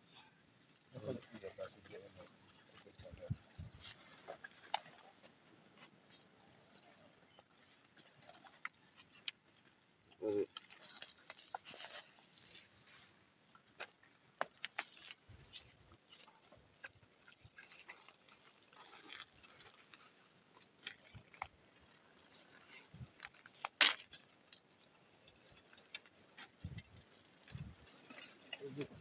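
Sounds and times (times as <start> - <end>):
twigs crackling: 0.1 - 29.0
branch snapping: 23.2 - 24.2.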